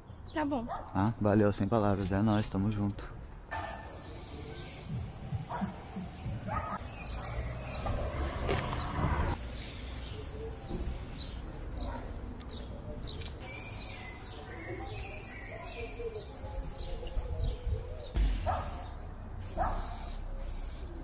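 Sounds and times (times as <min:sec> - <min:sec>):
spray paint can hissing: 0:03.5 - 0:11.5, 0:13.4 - 0:21.0
small birds chirping: 0:03.5 - 0:20.8.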